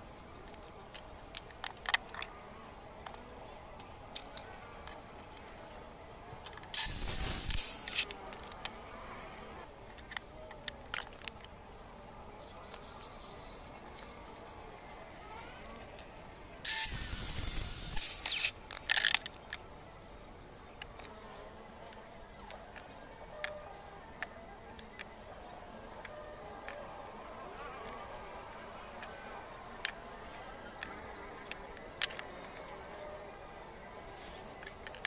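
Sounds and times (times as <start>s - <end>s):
circular saw cutting wood: 6.8s - 8.2s, 16.7s - 18.5s.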